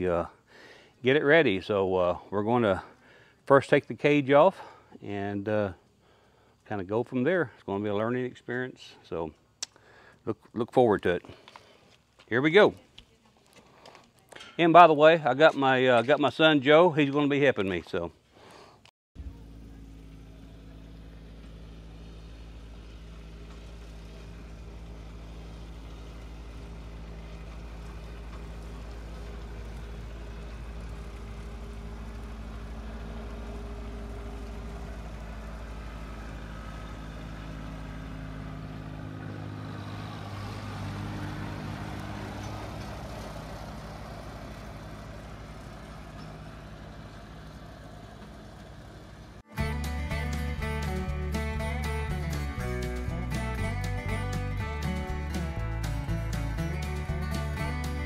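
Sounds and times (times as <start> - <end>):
tractor engine running: 19.2 - 58.0.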